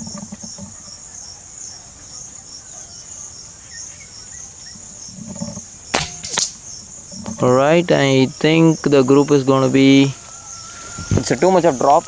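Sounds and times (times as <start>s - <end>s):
crickets chirping: 0.0s - 12.0s
air rifle shot: 5.9s - 6.6s.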